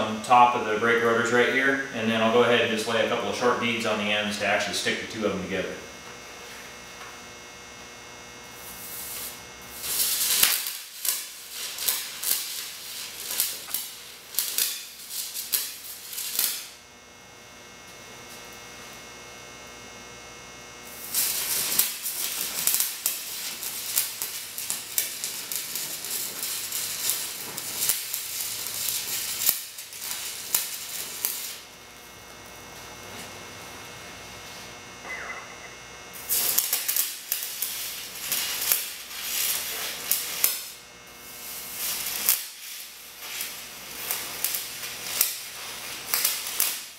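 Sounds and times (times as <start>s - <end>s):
welding arc crackling: 0.0s - 46.9s
low hum: 35.0s - 36.3s.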